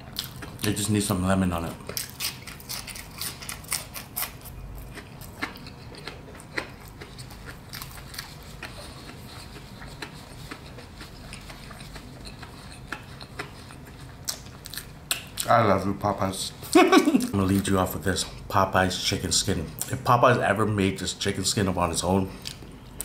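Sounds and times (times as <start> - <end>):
crunching and chewing fried food: 0.0 - 0.9, 1.6 - 15.5.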